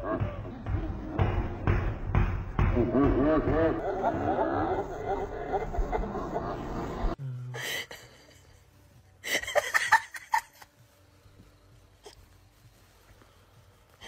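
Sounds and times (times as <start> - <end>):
person giggling: 2.8 - 8.4.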